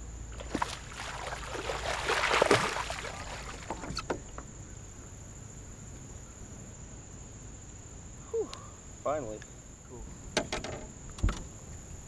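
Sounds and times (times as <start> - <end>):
fish splashing at the surface: 0.4 - 3.9.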